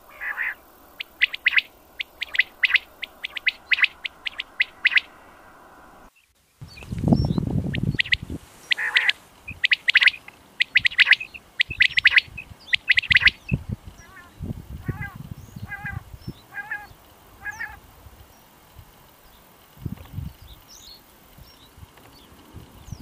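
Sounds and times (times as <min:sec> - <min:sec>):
nasal meow-like bird notes: 0:00.0 - 0:06.0, 0:12.8 - 0:17.8
quail calling: 0:00.0 - 0:06.1, 0:07.7 - 0:17.9
low rumble: 0:00.6 - 0:06.1.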